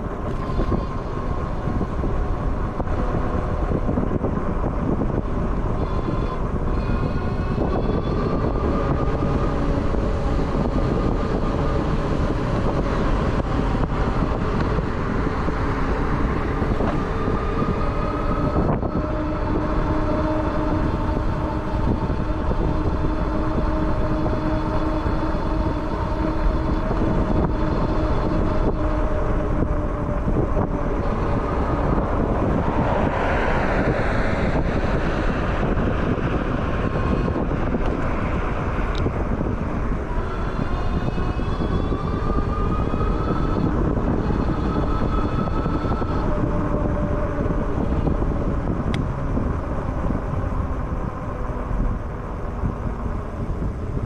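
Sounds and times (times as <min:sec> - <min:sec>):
hub motor whine: 0:00.0 - 0:54.0
wind and road noise: 0:00.0 - 0:54.0.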